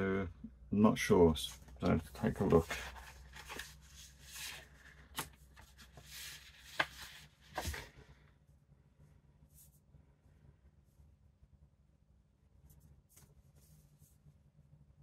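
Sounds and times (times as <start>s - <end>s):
cardboard and paper rustling: 1.4s - 8.0s.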